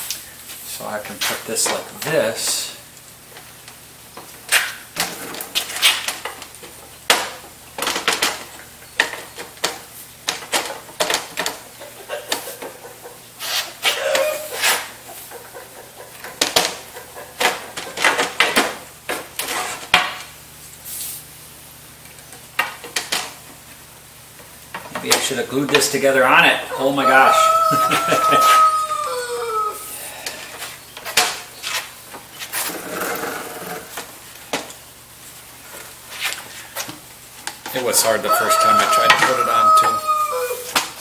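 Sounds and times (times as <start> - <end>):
short scrapes: 13.4 - 14.9.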